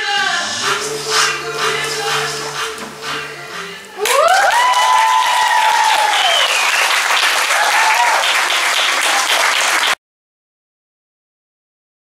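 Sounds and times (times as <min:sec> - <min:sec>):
song: 0:00.0 - 0:06.1
audience applauding: 0:04.0 - 0:10.0
audience whooping and cheering: 0:04.0 - 0:10.0.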